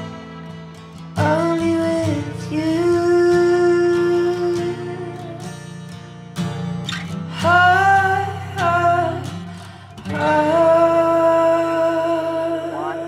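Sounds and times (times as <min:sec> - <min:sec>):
man singing long notes: 0:00.0 - 0:05.5, 0:07.3 - 0:13.0
acoustic guitar playing: 0:00.0 - 0:13.0.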